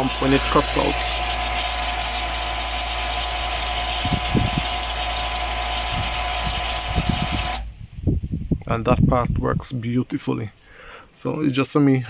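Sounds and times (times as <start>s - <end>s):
water pump humming with whine: 0.0s - 7.7s.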